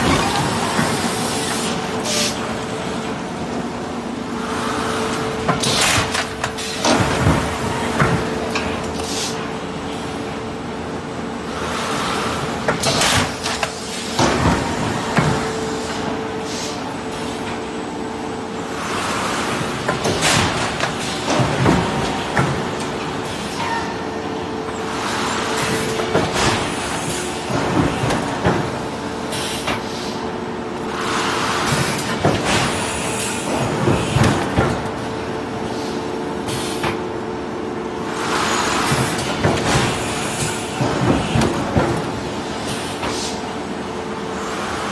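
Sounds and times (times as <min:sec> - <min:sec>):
machine clatter: 0:00.0 - 0:01.7, 0:05.0 - 0:09.2, 0:12.6 - 0:15.6, 0:19.0 - 0:23.9, 0:24.9 - 0:29.9, 0:30.8 - 0:35.2, 0:38.0 - 0:43.3
machine humming: 0:00.0 - 0:05.7.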